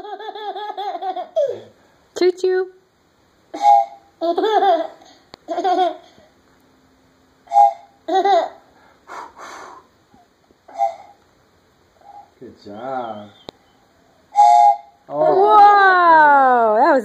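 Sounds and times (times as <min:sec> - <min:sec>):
toddler laughing: 0:00.0 - 0:01.7, 0:04.2 - 0:06.2, 0:08.1 - 0:08.6
toy train whistle toots: 0:03.6 - 0:04.1, 0:07.5 - 0:08.0, 0:10.7 - 0:11.2, 0:14.3 - 0:15.0.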